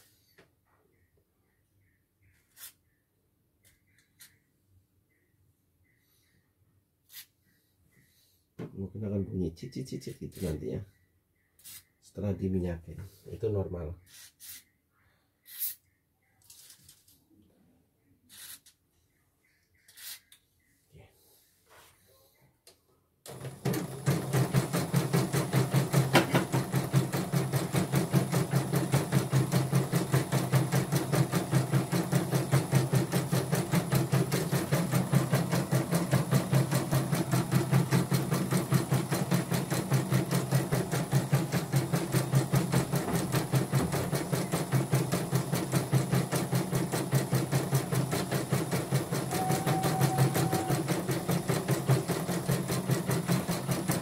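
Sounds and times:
embroidery machine stitching: 0:23.3 - 0:54.0.

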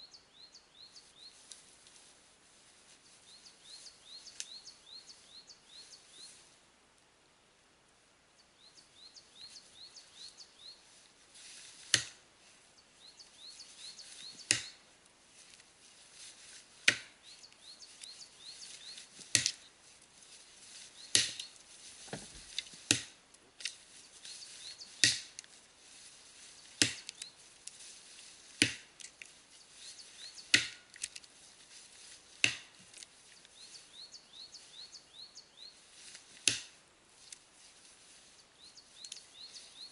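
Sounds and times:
axe chopping into tree trunk: 0:11.9 - 0:12.2, 0:14.4 - 0:14.8, 0:16.8 - 0:17.2, 0:19.3 - 0:19.6, 0:21.1 - 0:21.5, 0:22.1 - 0:23.2, 0:25.0 - 0:25.4, 0:26.8 - 0:27.1, 0:28.6 - 0:28.9, 0:30.5 - 0:30.8, 0:32.4 - 0:32.7, 0:36.4 - 0:36.8.

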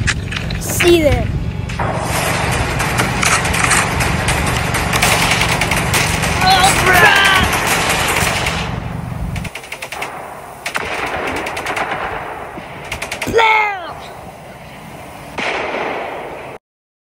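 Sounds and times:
noisy blast: 0:00.8 - 0:16.6
machine-gun fire: 0:01.7 - 0:13.8, 0:15.4 - 0:16.6.

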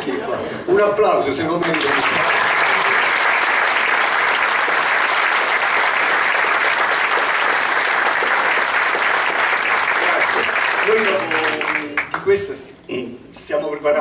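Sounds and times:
audience applauding: 0:01.6 - 0:12.3.

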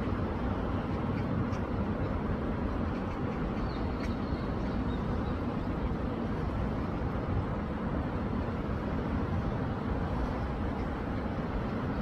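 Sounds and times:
stream water rushing: 0:00.0 - 0:12.0.

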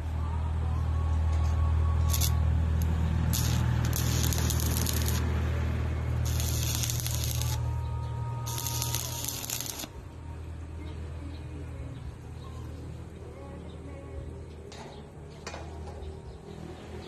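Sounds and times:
steady low hum: 0:00.0 - 0:14.7
arc strike spark: 0:02.1 - 0:02.4, 0:03.3 - 0:05.3, 0:06.2 - 0:07.6, 0:08.5 - 0:09.9
welding arc crackling: 0:02.1 - 0:05.5, 0:06.1 - 0:07.7, 0:08.4 - 0:10.0.

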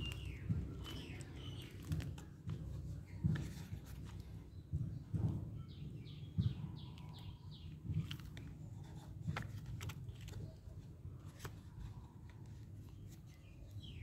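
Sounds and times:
bird chirping: 0:00.0 - 0:09.0, 0:11.8 - 0:14.0.

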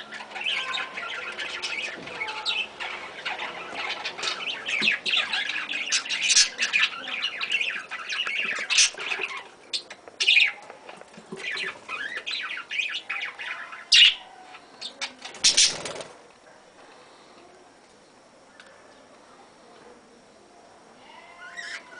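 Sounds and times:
budgerigars chattering and chirping: 0:00.0 - 0:10.6, 0:11.4 - 0:14.2, 0:14.8 - 0:16.0.

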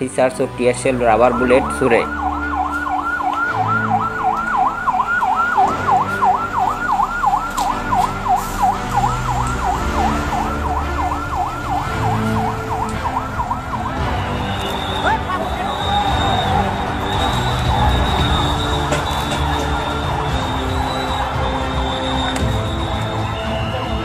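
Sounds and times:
police siren yelping: 0:01.0 - 0:24.0.

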